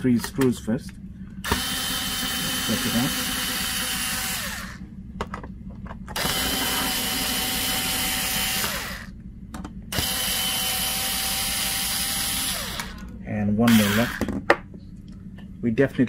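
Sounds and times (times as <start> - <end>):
electric screwdriver motor whine: 1.4 - 4.8, 6.2 - 9.1, 9.9 - 13.1, 13.7 - 14.3.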